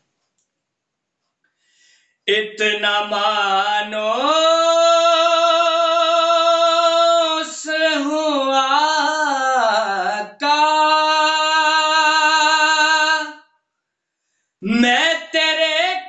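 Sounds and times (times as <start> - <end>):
singer breathing: 1.5 - 2.2, 14.2 - 14.6
man singing devotional chant: 2.3 - 13.4, 14.6 - 16.0.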